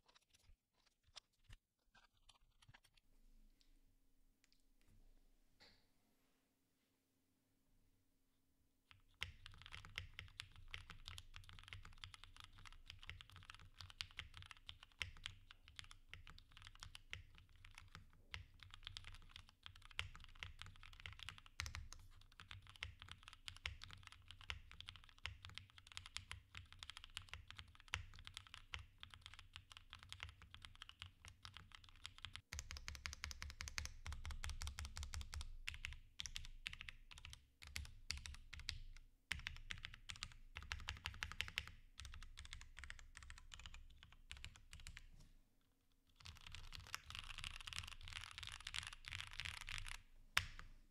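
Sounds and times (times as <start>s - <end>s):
fast typing on mechanical keyboard: 9.0s - 45.0s, 46.2s - 50.0s.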